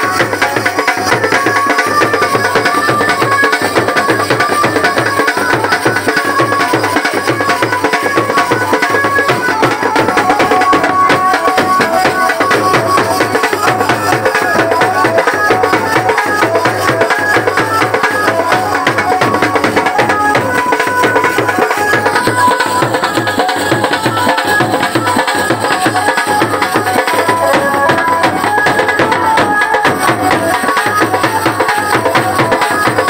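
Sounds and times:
barrel drum fast beat: 0.0 - 33.0
high melody line: 7.4 - 33.0.

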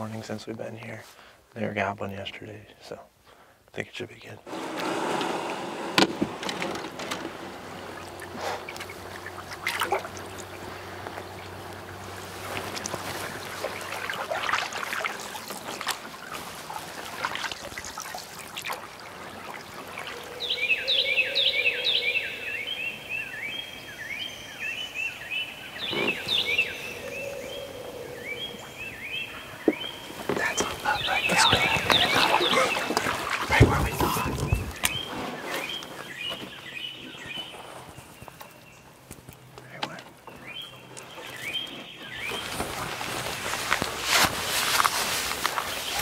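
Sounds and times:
water trickling: 7.5 - 20.7, 30.0 - 35.0
bird chirping: 19.6 - 38.9, 39.6 - 43.0.

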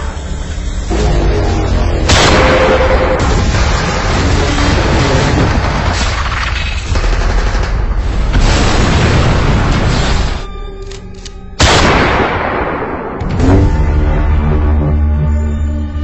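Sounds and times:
action soundtrack music: 0.0 - 16.0
explosions: 2.0 - 10.4, 11.6 - 14.0
gunfire: 11.6 - 13.3.

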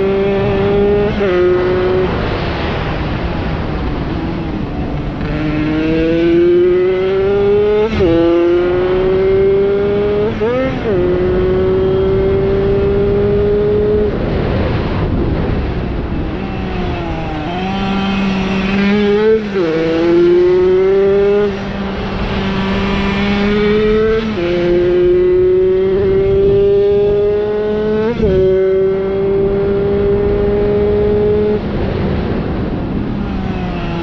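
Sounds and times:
moped engine revving hard: 5.2 - 14.1, 16.4 - 31.6.

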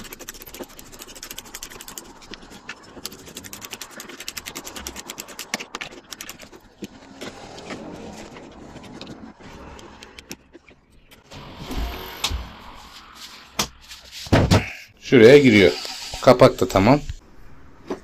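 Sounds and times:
screwdriver scraping: 15.2 - 16.6.

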